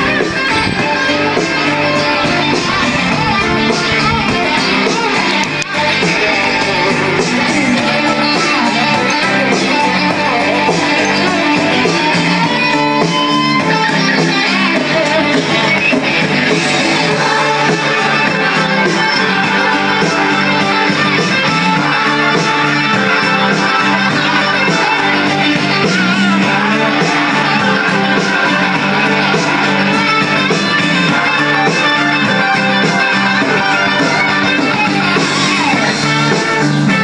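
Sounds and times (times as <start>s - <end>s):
song with strummed guitar: 0.0s - 37.0s.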